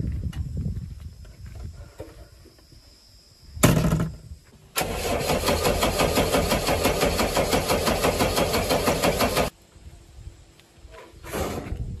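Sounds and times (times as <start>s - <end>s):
diesel engine starting and running: 4.7s - 9.5s.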